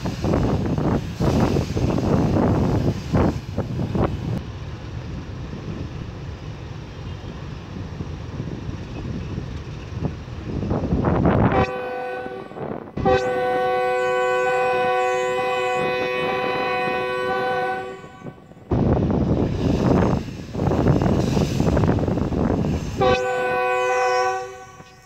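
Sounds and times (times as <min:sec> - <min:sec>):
locomotive horn blasts: 0:11.4 - 0:18.4, 0:23.0 - 0:25.0.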